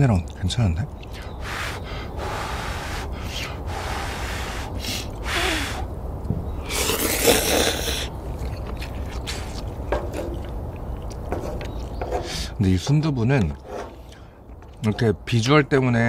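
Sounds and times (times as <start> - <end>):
noodles being slurped: 6.7 - 9.7.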